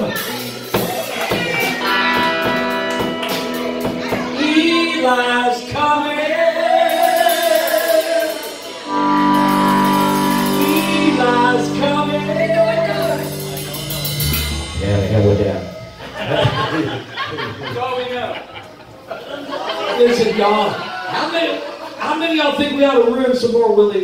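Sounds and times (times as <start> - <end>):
live rock band playing: 0.0 - 17.5
person singing: 3.7 - 15.0.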